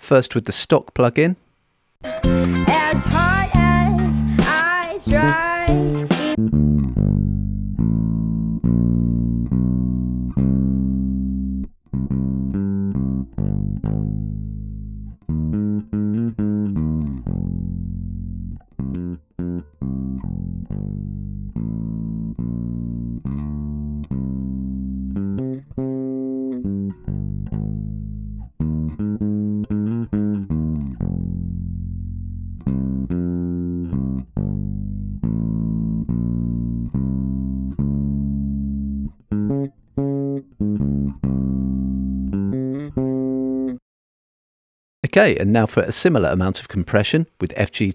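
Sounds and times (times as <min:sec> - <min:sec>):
electric bass guitar notes: 0:02.0 - 0:43.8.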